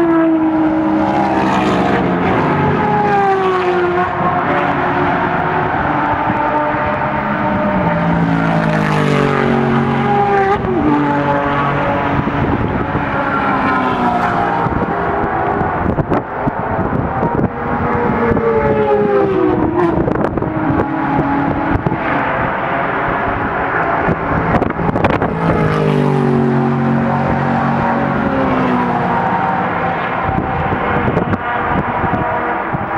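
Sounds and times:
racing car engines passing: 0.0 - 32.9.

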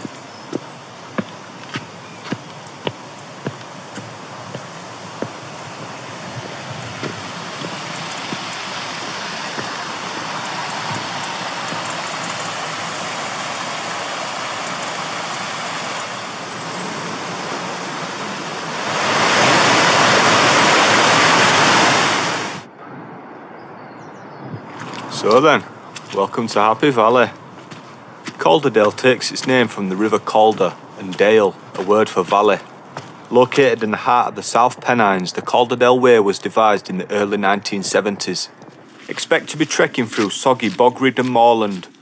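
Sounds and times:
footsteps on stone paving: 0.0 - 12.8, 24.8 - 26.6, 27.2 - 35.5, 37.8 - 42.0
water rushing over lock gates: 0.0 - 22.7, 24.8 - 27.5
white water rushing in river: 0.0 - 22.7.

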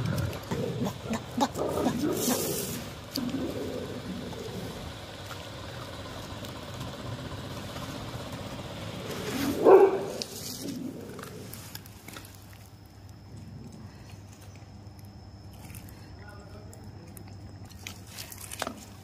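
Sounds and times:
low steady background hum: 0.0 - 19.0
dog barking: 9.6 - 10.2.

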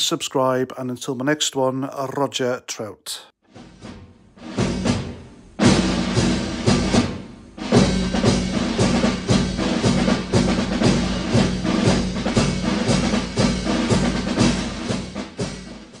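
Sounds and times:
music with steady drum beat: 3.4 - 16.0.

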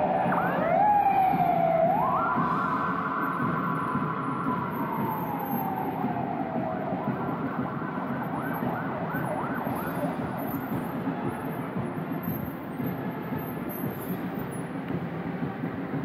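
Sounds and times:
vehicle siren: 0.0 - 13.0
steady background noise: 0.0 - 16.0.

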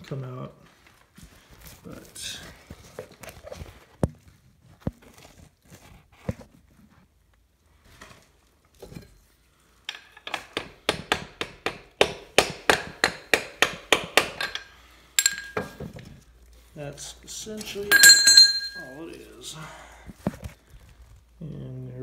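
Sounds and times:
metal-on-metal tapping: 9.9 - 15.9, 17.9 - 18.8.

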